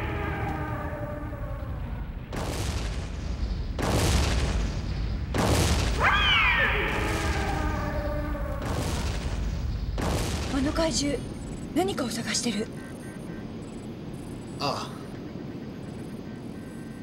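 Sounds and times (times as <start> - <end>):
explosions booming: 1.9 - 11.4.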